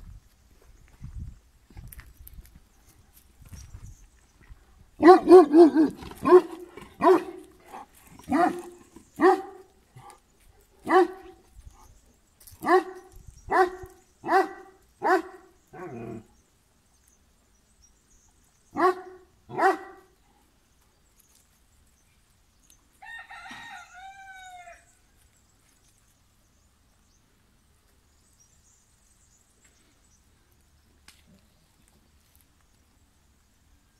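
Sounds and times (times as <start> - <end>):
dog barking: 5.0 - 7.4, 8.3 - 9.6, 10.8 - 11.4, 12.6 - 16.0, 18.8 - 20.0
rooster crowing: 23.0 - 24.9.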